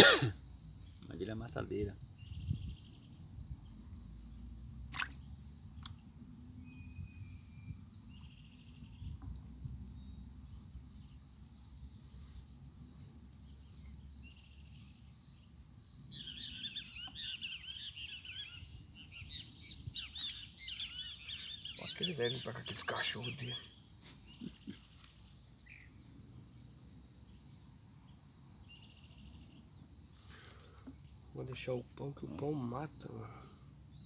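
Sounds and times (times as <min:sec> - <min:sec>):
high-pitched insect chorus: 0:00.0 - 0:34.0
birds chirping: 0:19.2 - 0:23.7.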